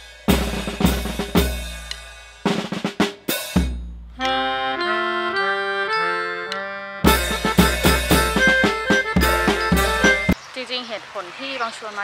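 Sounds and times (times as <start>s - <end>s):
drum hits: 0.0s - 4.0s, 7.1s - 10.4s
reedy keyboard chords: 3.9s - 10.4s.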